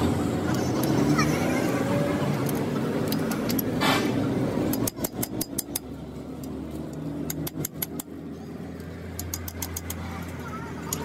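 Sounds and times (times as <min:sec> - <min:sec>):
vehicle engine running: 0:00.0 - 0:11.0
socket wrench clicking: 0:02.4 - 0:03.7, 0:04.7 - 0:08.1, 0:08.8 - 0:10.0.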